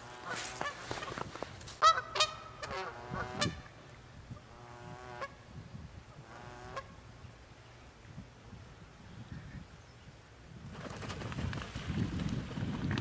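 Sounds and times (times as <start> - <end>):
geese honking: 0.0 - 1.2, 1.8 - 3.7.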